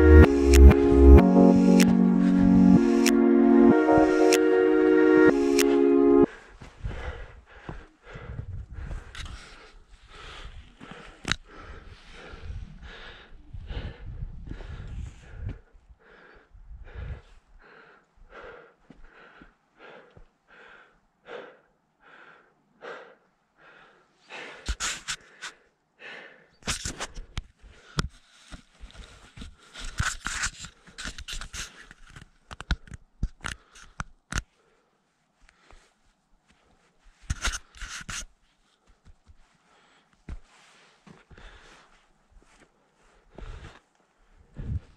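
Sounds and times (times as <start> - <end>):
fast heavy breathing: 5.3 - 32.0, 38.8 - 44.9.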